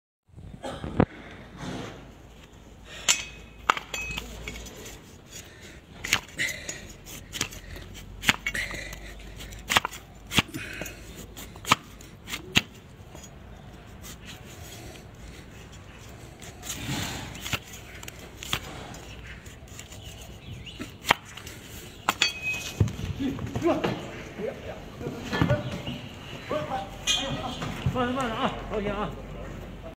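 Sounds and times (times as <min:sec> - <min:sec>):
blade chopping hoof on wood block: 0:09.5 - 0:10.6, 0:11.4 - 0:12.8.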